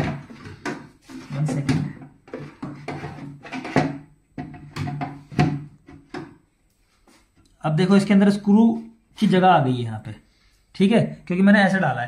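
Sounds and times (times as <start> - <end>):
metallic knocks and scrapes: 0.0 - 6.3.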